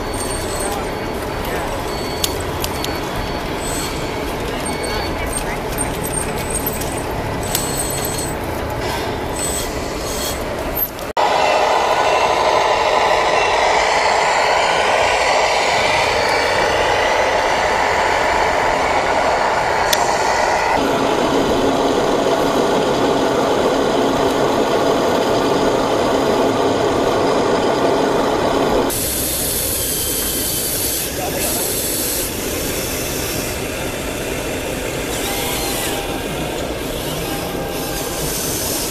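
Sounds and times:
toy truck engine drone: 0:00.0 - 0:08.4, 0:28.8 - 0:38.9.

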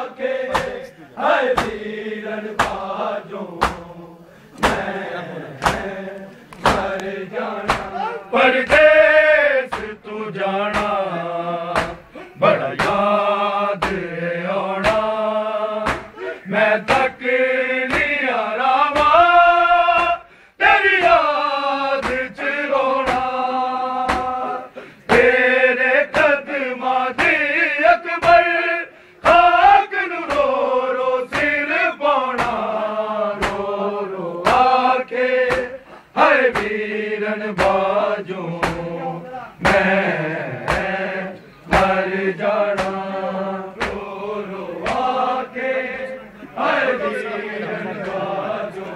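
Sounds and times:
men chanting a lament: 0:00.0 - 0:48.9
hands slapping chests: 0:00.5 - 0:00.8, 0:01.6 - 0:01.8, 0:02.6 - 0:02.9, 0:03.6 - 0:03.9, 0:04.5 - 0:05.0, 0:05.6 - 0:08.0, 0:08.6 - 0:09.0, 0:09.7 - 0:10.0, 0:10.7 - 0:11.0, 0:11.7 - 0:12.1, 0:12.8 - 0:13.0, 0:13.8 - 0:14.1, 0:14.8 - 0:15.1, 0:15.8 - 0:16.2, 0:17.9 - 0:18.2, 0:18.9 - 0:19.2, 0:22.0 - 0:22.4, 0:23.0 - 0:23.4, 0:24.0 - 0:24.4, 0:25.1 - 0:25.4, 0:26.1 - 0:26.4, 0:27.1 - 0:27.4, 0:30.2 - 0:30.6, 0:31.3 - 0:31.6, 0:32.3 - 0:32.7, 0:33.4 - 0:33.7, 0:34.4 - 0:34.8, 0:35.4 - 0:35.8, 0:36.4 - 0:36.8, 0:37.5 - 0:37.9, 0:38.6 - 0:38.9, 0:39.6 - 0:40.0, 0:40.6 - 0:41.0, 0:41.7 - 0:42.0, 0:42.7 - 0:43.1, 0:43.8 - 0:44.1, 0:44.8 - 0:45.2.

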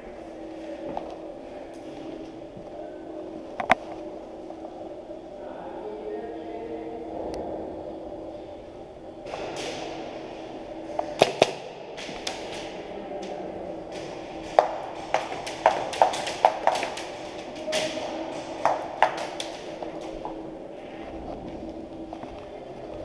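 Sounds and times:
steady low hum: 0:00.0 - 0:23.0
pellets striking hard surfaces: 0:11.0 - 0:12.7, 0:13.9 - 0:20.3.

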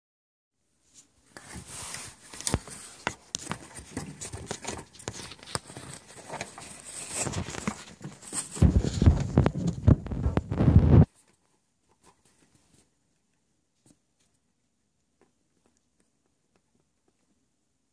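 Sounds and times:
low rumble on microphone: 0:08.6 - 0:11.1.

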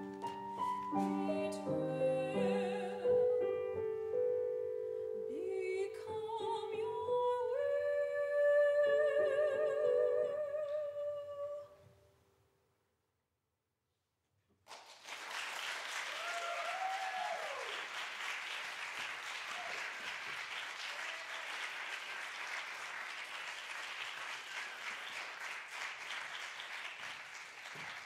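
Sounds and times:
audience applauding: 0:14.7 - 0:28.0.

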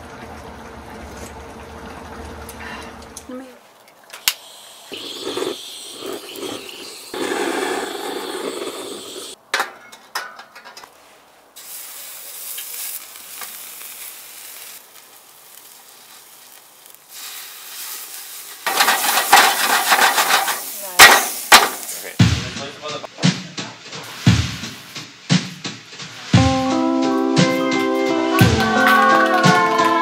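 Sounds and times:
butane torch flame rushing: 0:04.2 - 0:09.4, 0:11.6 - 0:22.2
pork sizzling in grill pan: 0:04.4 - 0:09.4, 0:11.6 - 0:22.2.

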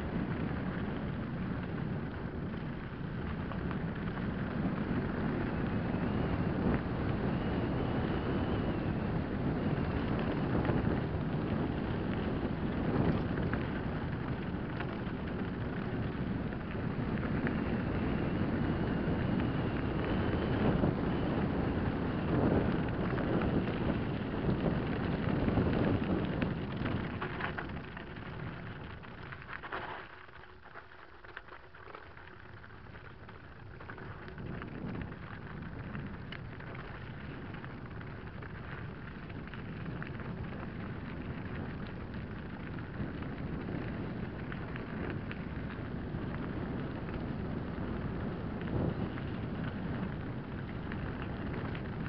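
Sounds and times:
wind rush on microphone: 0:00.0 - 0:29.8, 0:32.4 - 0:52.0
bike rattling: 0:00.0 - 0:52.0
tyres crunching over stones: 0:26.4 - 0:34.3.

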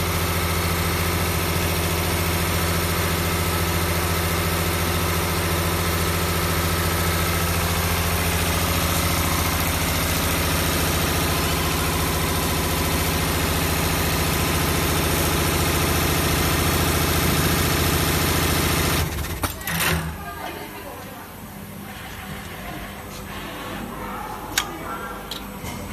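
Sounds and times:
needle winding machine running: 0:03.9 - 0:20.2.

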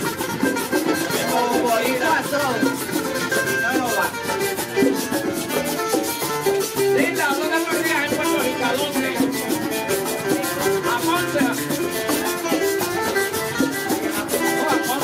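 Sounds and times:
guiro scraping: 0:00.0 - 0:15.0
maracas shaking: 0:00.0 - 0:15.0
strummed guitar and cuatro: 0:00.0 - 0:15.0
man singing: 0:01.0 - 0:02.6, 0:07.0 - 0:11.7.

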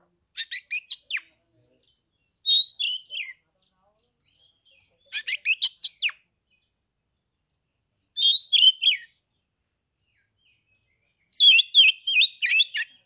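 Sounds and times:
bird singing whistled phrases: 0:00.4 - 0:01.3, 0:02.4 - 0:03.4, 0:05.1 - 0:06.2, 0:08.2 - 0:09.2, 0:11.3 - 0:13.0.

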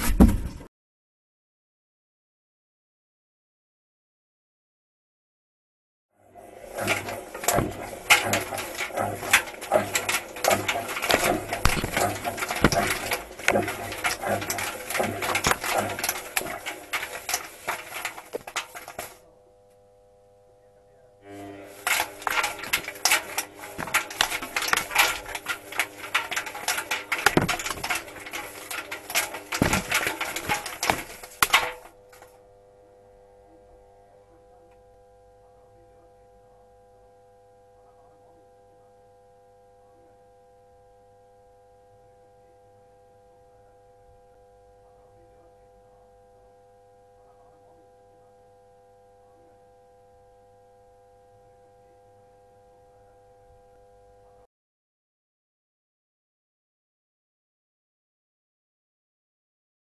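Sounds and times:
dryer drum rattling and knocking: 0:00.0 - 0:00.7, 0:06.6 - 0:19.2, 0:21.7 - 0:31.9.

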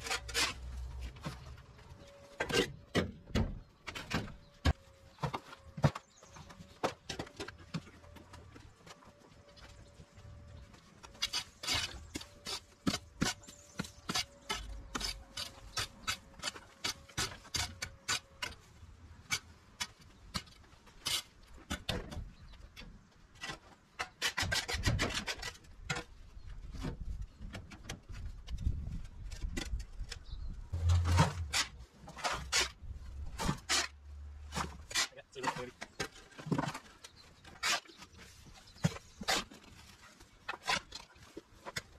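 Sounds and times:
rake and shovel scraping soil: 0:00.0 - 0:02.8, 0:10.9 - 0:21.8, 0:30.7 - 0:41.9.

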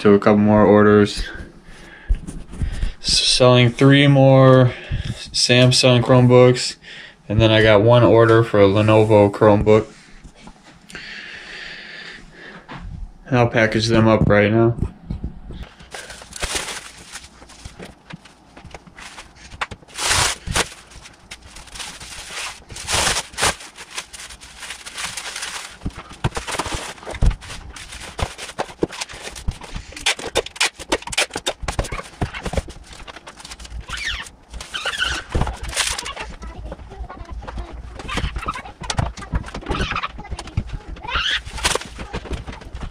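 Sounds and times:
bubble wrap crinkling: 0:15.6 - 0:42.9.

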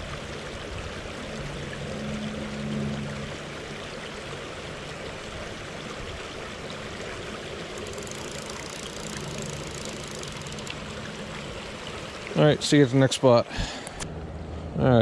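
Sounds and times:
creek rushing over gravel: 0:04.2 - 0:13.5
fly reel clicking: 0:07.7 - 0:10.8.

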